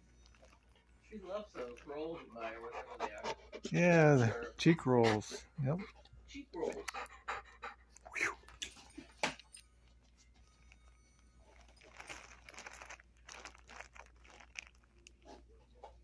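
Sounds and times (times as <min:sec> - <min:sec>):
dog sniffing: 0:01.6 - 0:08.0.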